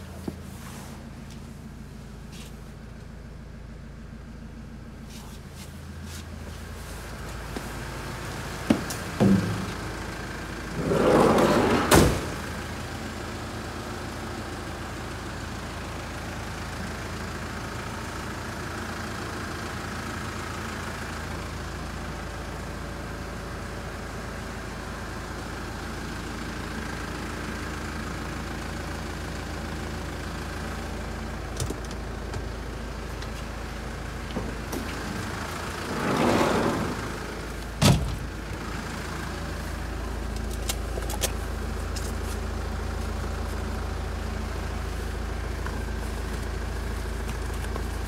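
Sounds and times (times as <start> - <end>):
diesel engine idling: 0.0 - 48.0
loud rushing scrape: 10.7 - 12.4.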